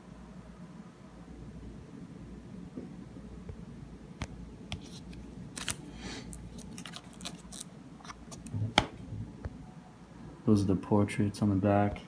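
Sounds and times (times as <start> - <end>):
binder pages clicking and rustling: 4.8 - 8.9.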